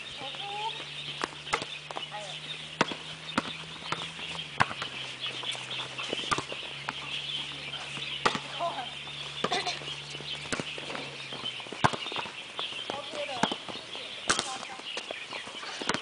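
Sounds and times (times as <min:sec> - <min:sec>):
volleyball hand slaps: 0:14.3 - 0:14.6.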